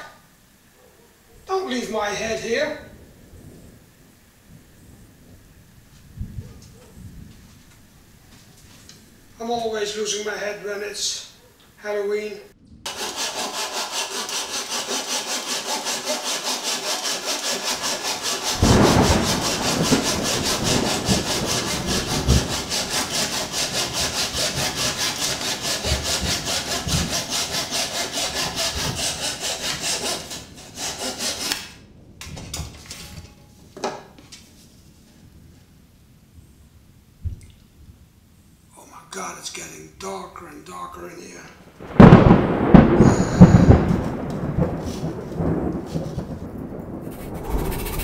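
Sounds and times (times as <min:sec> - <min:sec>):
scroll saw cutting wood: 0:12.9 - 0:31.7, 0:47.1 - 0:48.0.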